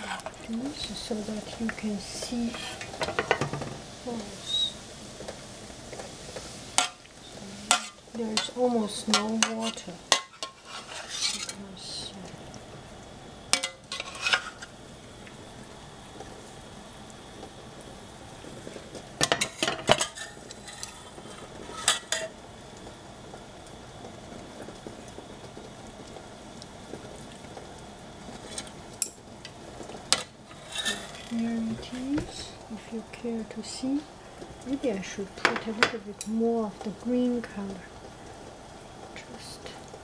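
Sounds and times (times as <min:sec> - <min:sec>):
metal ladle scraping pot: 0:00.0 - 0:00.4, 0:07.7 - 0:11.6, 0:13.6 - 0:14.7, 0:19.2 - 0:22.3, 0:30.1 - 0:31.4
faint steady hiss: 0:00.0 - 0:40.0.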